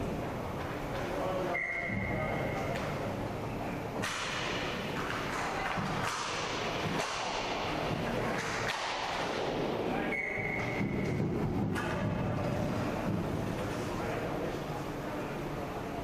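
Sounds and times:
hockey sticks slapping: 0:04.0 - 0:09.8.

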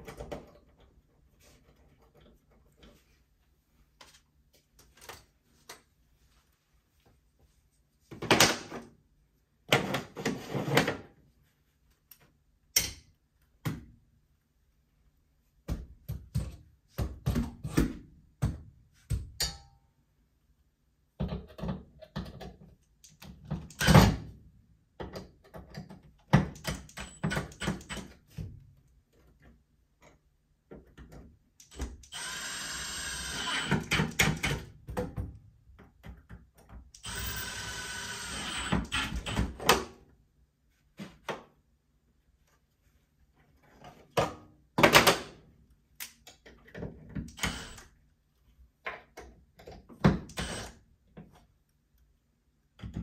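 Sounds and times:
power drill running: 0:32.1 - 0:34.0, 0:37.0 - 0:39.4, 0:47.4 - 0:47.8, 0:50.3 - 0:50.8.

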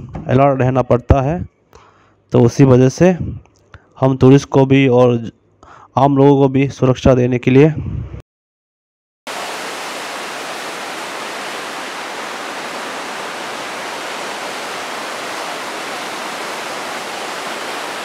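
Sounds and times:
river rushing over rapids: 0:09.3 - 0:18.0.

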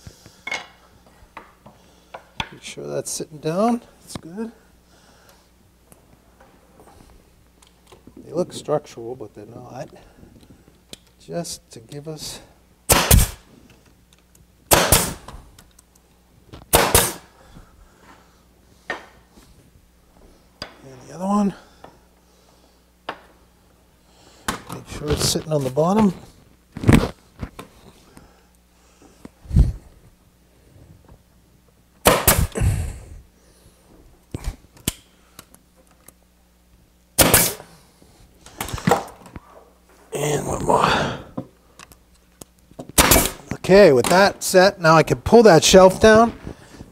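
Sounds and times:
nail gun firing: 0:12.9 - 0:13.4, 0:14.7 - 0:15.3, 0:16.7 - 0:17.3, 0:32.0 - 0:32.6, 0:37.2 - 0:37.7, 0:43.0 - 0:43.5.

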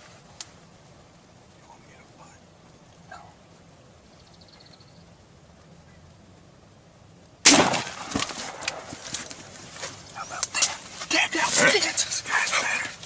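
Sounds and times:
rustling: 0:00.0 - 0:04.1, 0:07.5 - 0:13.0
loud shotgun shot: 0:07.4 - 0:09.0.

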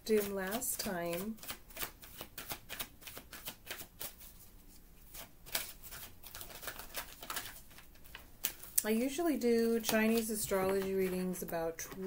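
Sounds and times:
cards shuffling: 0:00.0 - 0:08.8, 0:09.5 - 0:12.0.

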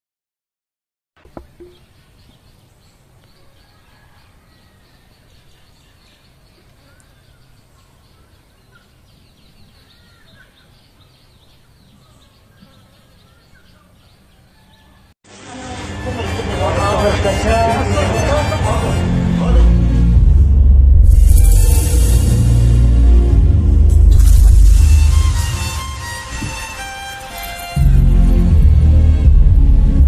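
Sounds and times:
small birds chirping: 0:01.2 - 0:15.1.

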